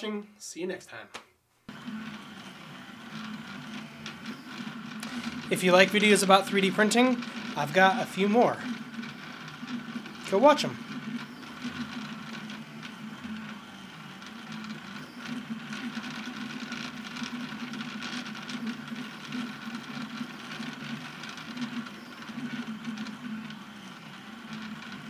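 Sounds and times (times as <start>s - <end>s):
printer motors whirring: 1.7s - 25.0s.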